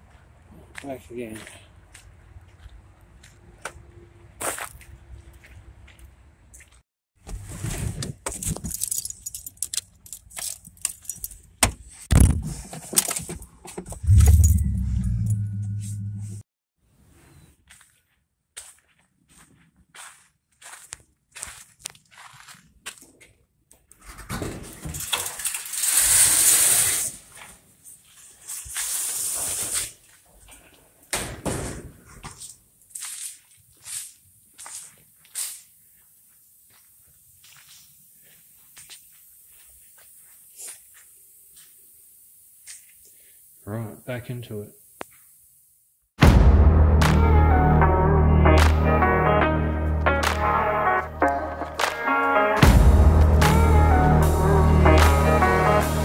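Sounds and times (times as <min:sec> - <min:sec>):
keys jangling: 0:08.4 - 0:11.5
rustling scuffing noises: 0:17.1 - 0:23.4, 0:27.3 - 0:30.8, 0:32.1 - 0:41.8.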